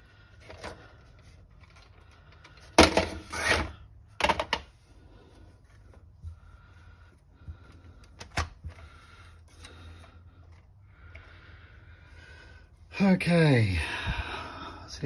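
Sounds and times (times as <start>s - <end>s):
plastic parts clattering on workbench: 1.6s - 4.7s.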